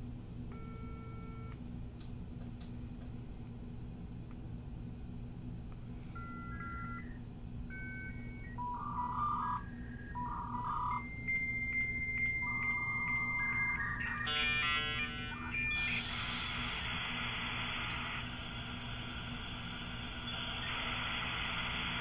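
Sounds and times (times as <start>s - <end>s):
modem beeps: 0.5s - 1.6s, 6.2s - 18.2s, 20.1s - 22.0s
cluster of modem tones: 6.2s - 22.0s
high modem answer tone: 7.7s - 16.8s.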